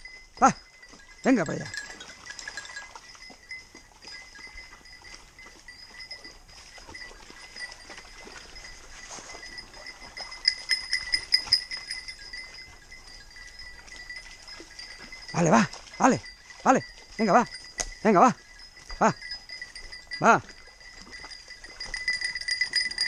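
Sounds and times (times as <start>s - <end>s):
dog collar bells jingling: 0.0s - 23.0s
dogs moving on stones and water: 0.0s - 23.0s.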